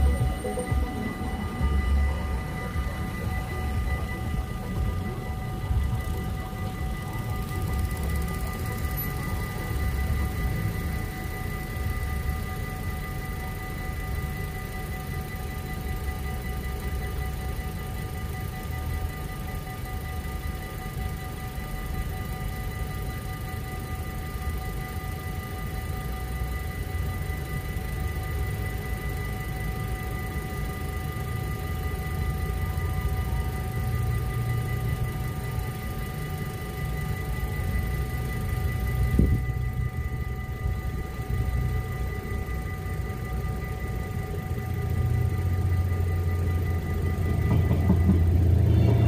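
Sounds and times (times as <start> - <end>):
level crossing warning bells: 0.0 - 49.0.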